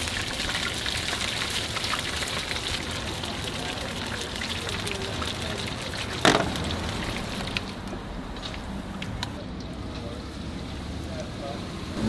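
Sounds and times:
oil sizzling and crackling: 0.0 - 12.0
sharp knock: 6.3 - 6.6.

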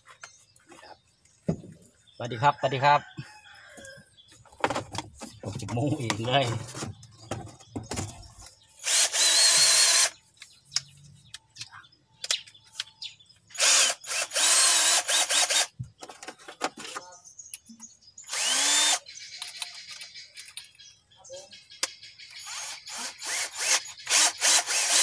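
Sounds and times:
cordless drill motor whine: 8.8 - 10.1, 13.6 - 15.7, 18.3 - 19.0, 22.4 - 25.0.

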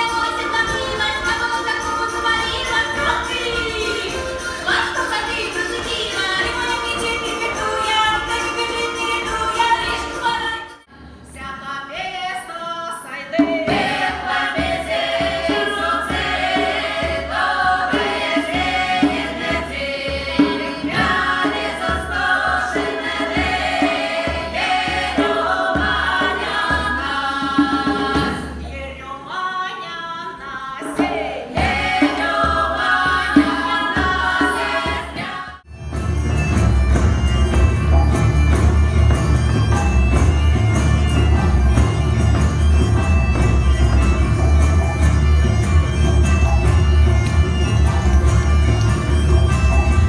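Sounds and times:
folk choir singing: 0.0 - 10.9, 12.0 - 35.7.

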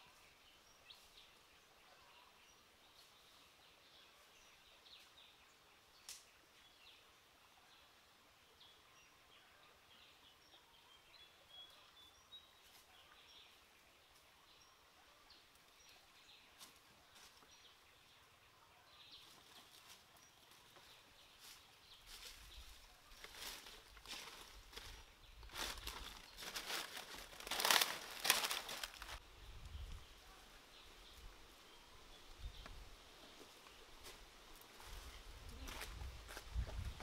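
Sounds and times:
footsteps through dry leaves: 21.4 - 29.2.

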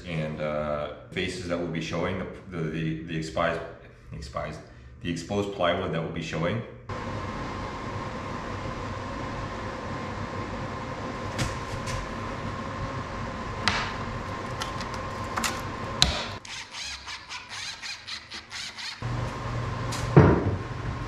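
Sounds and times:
steady machine hum: 0.0 - 21.0
cordless drill driving screw: 16.4 - 19.0.

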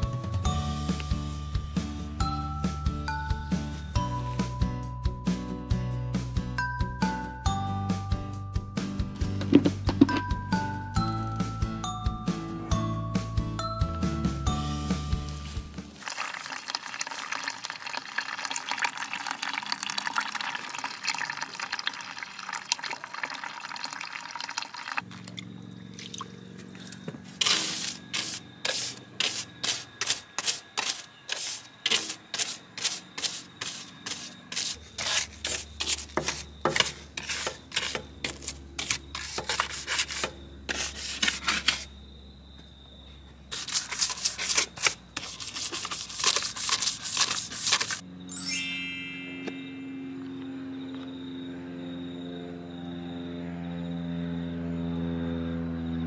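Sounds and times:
water running: 15.7 - 26.3.

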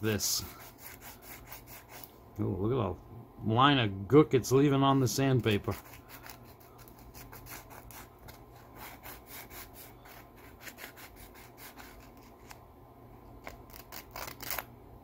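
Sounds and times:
metal scratching on sandpaper: 0.0 - 2.1, 5.0 - 12.6.

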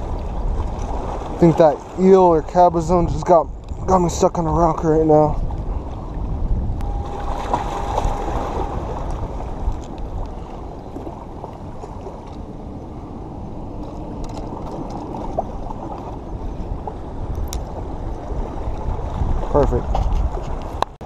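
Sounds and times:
small waves against rocks: 7.0 - 12.3.

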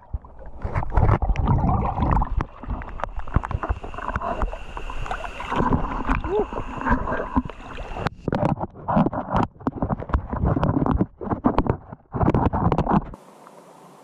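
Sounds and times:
water sloshing underwater: 0.0 - 13.2
faint steady hiss: 2.6 - 8.2, 13.2 - 14.0
muffled bumps and clicks: 6.9 - 13.2.

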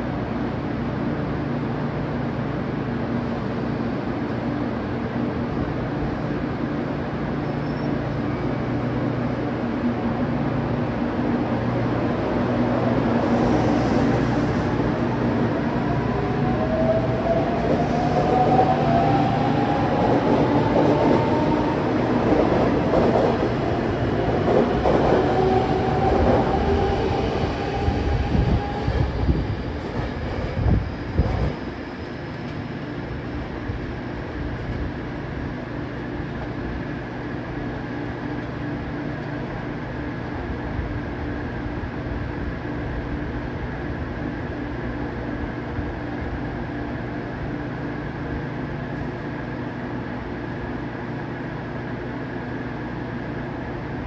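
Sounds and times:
train wheels rumbling: 11.2 - 36.7.

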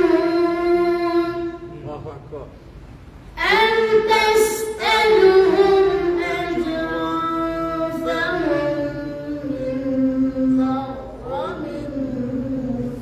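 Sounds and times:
person chanting recitation: 3.4 - 13.0.

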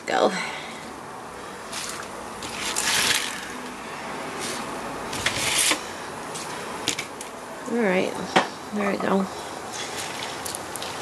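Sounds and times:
leaves rustling in colander: 1.7 - 5.8, 9.7 - 11.0.

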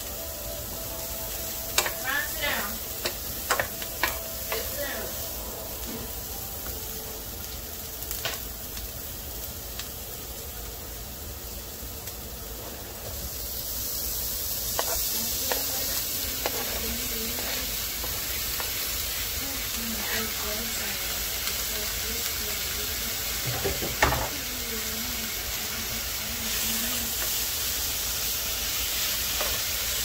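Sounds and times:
onions sizzling in a frying pan: 0.0 - 30.0
wooden spatula stirring: 14.8 - 18.8.

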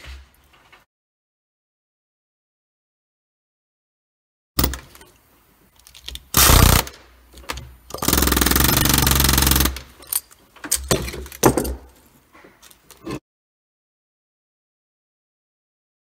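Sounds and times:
pneumatic air hammer chattering: 4.6 - 5.0, 6.3 - 7.0, 7.9 - 10.2.

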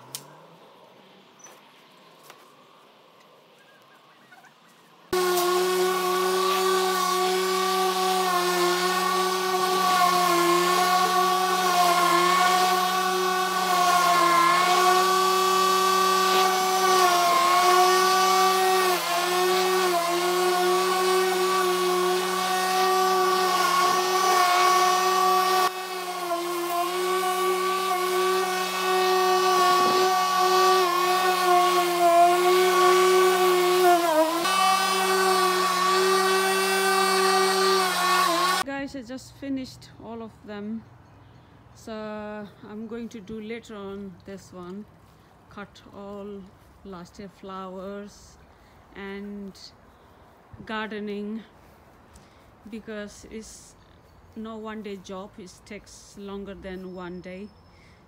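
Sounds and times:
electric lawn mower running: 5.1 - 38.7.

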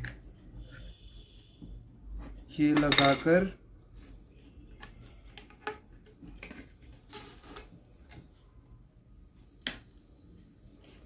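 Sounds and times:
plastic parts clicking and tapping: 4.8 - 8.3.

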